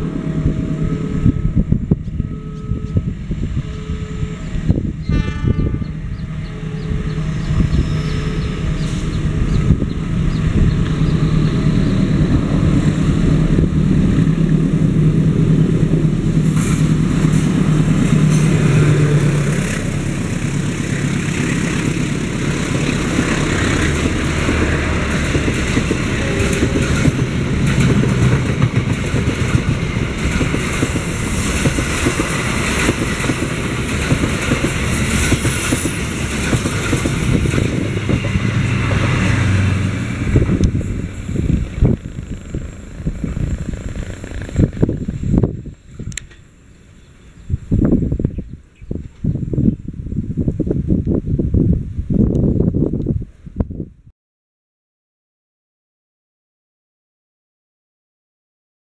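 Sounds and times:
locomotive engine humming: 0.0s - 49.2s
train wheels clattering on rails: 6.8s - 46.5s.

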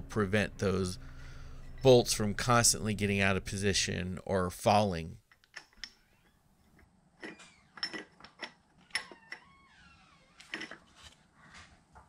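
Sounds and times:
metal bolts clicking and scraping: 5.3s - 9.5s, 10.4s - 10.9s.

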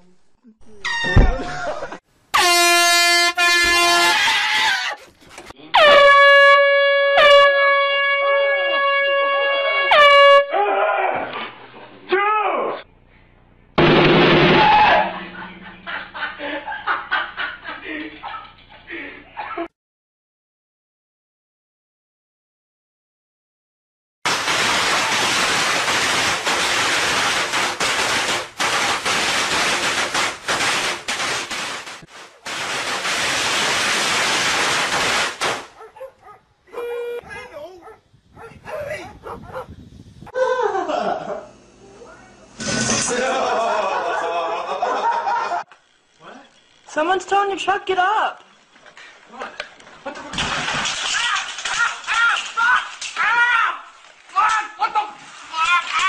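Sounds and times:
air horn blasts: 2.3s - 4.3s, 5.7s - 10.6s, 36.7s - 37.3s
higher-pitched horn held: 2.4s - 4.2s, 36.7s - 37.3s
firecrackers crackling: 24.3s - 35.8s, 50.4s - 54.4s.

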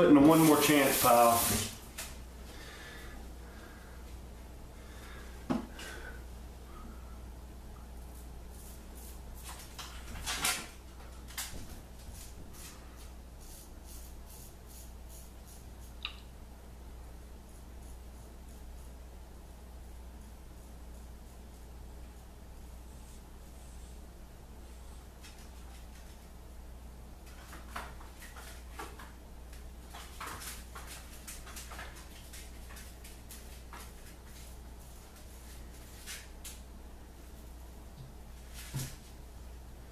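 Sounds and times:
razor scraping beard stubble: 13.4s - 16.0s.

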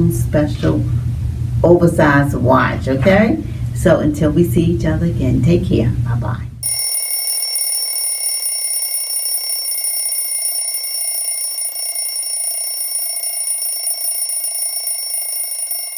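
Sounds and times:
alarm clock bells ringing: 6.6s - 15.9s.

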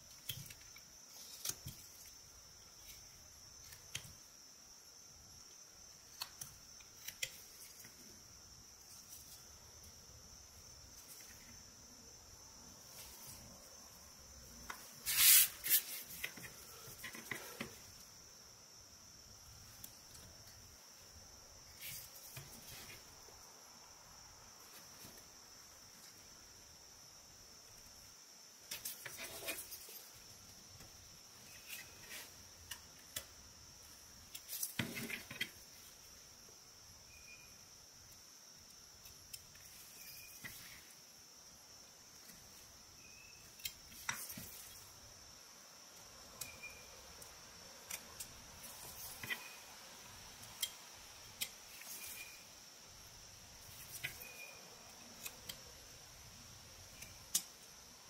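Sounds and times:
faint high-pitched whine: 0.0s - 58.0s
knife whittling wood: 14.7s - 17.8s, 28.7s - 30.2s.

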